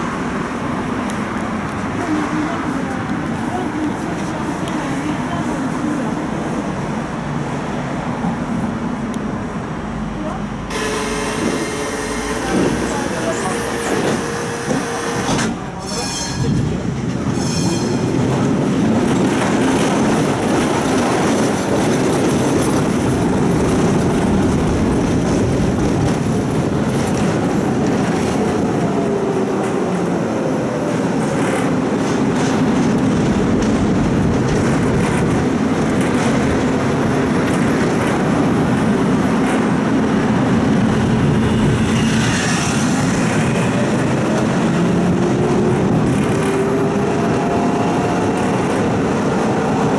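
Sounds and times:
tram wheels rumbling on rails: 0.0s - 49.9s
high wheel squeal: 17.4s - 18.1s.

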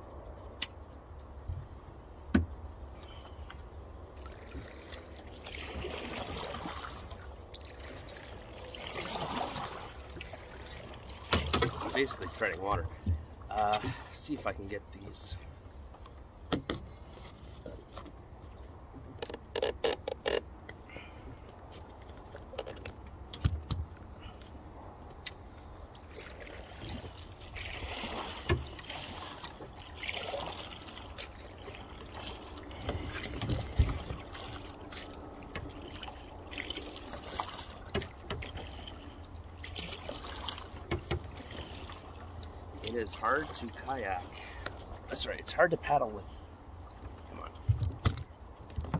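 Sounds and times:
dull thumps against boat: 2.3s - 2.6s
paddle splashing in water: 4.0s - 14.2s, 25.4s - 45.1s.

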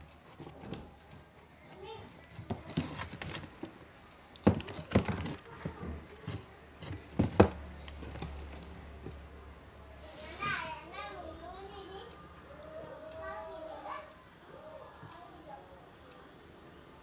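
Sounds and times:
knocks and rustles of wires: 0.3s - 9.2s.

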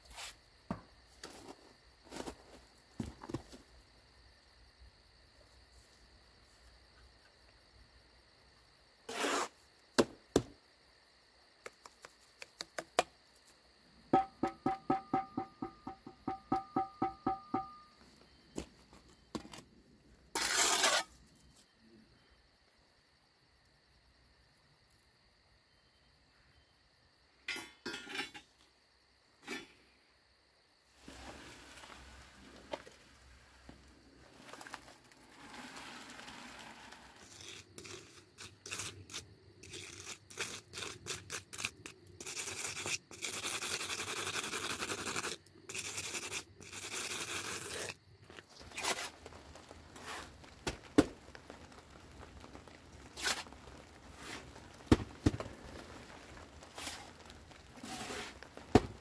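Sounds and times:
wooden float scraping wet concrete: 9.1s - 9.6s, 20.3s - 21.2s, 31.0s - 59.0s
knocks: 14.2s - 17.9s
soft uneven scratching: 20.4s - 21.6s, 31.0s - 59.0s.

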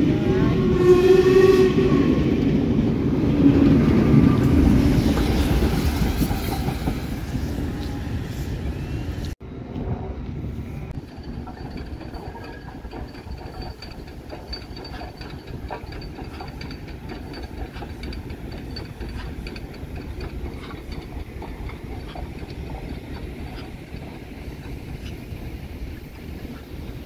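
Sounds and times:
train rumbling past: 0.0s - 27.0s
wheels clicking over rail joints: 10.9s - 27.0s.

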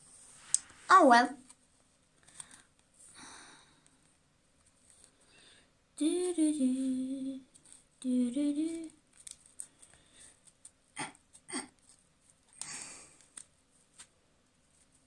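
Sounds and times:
person humming a tune: 6.0s - 9.0s.

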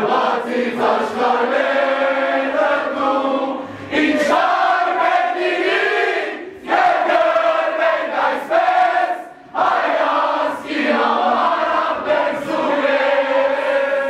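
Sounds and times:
crowd singing in unison: 0.0s - 14.0s.

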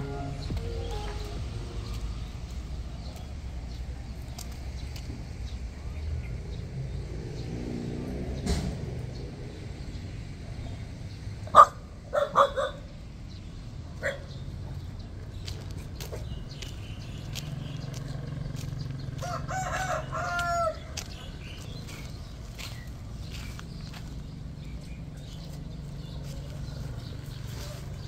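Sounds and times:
rooster crowing: 19.2s - 20.9s.

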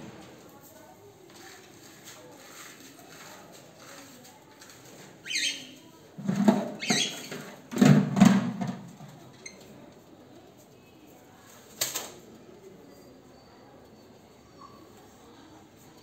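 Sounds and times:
knocking and rustling near cage: 6.2s - 9.3s.

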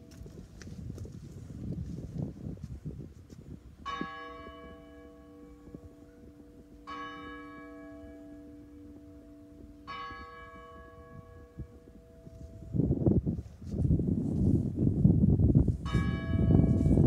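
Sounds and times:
church bell tolling: 3.8s - 12.8s, 15.8s - 17.0s.

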